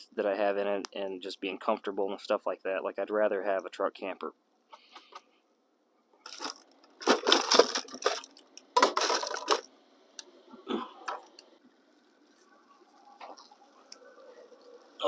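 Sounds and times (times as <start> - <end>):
crunching and rustling: 6.2 - 9.7.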